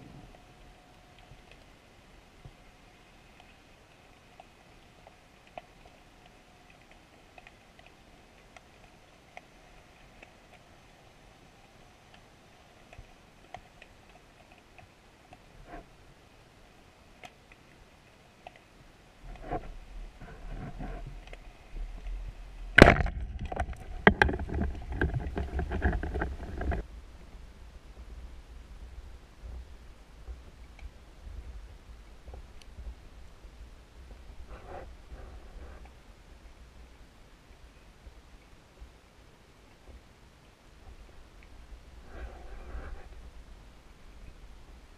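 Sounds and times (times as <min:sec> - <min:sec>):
sharp underwater clicks: 0:04.2 - 0:10.7, 0:17.2 - 0:17.8
speargun crack underwater: 0:22.7 - 0:26.8.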